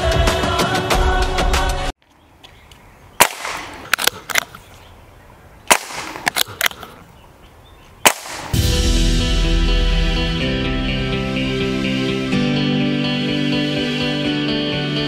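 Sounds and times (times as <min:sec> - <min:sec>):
background music: 0:00.0 - 0:01.9, 0:08.5 - 0:15.0
air rifle shots: 0:03.2 - 0:04.6, 0:05.7 - 0:07.0, 0:08.0 - 0:08.6.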